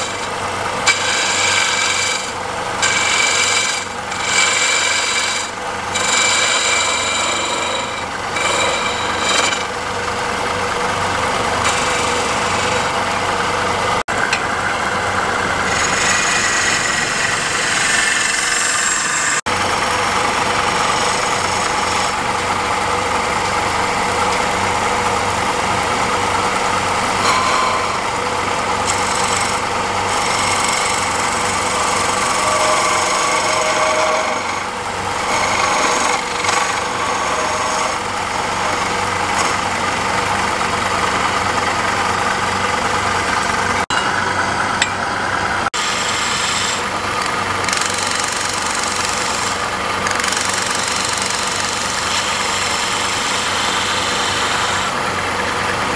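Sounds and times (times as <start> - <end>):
chisel scraping spinning wood: 0.0 - 55.9
wood lathe motor running: 0.0 - 55.9.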